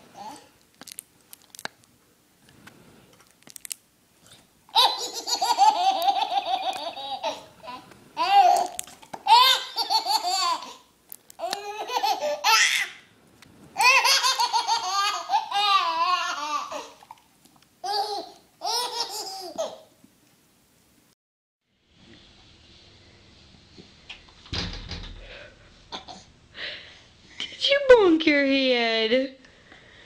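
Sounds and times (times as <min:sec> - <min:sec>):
baby laughing: 0:04.7 - 0:10.8, 0:11.4 - 0:13.0, 0:13.8 - 0:17.0, 0:17.8 - 0:19.9.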